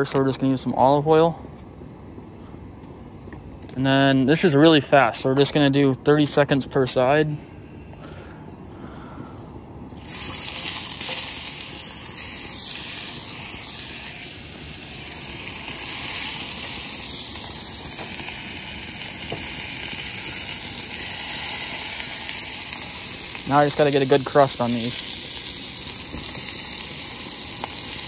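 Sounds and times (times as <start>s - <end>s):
steak sizzling in a pan: 9.9s - 28.0s.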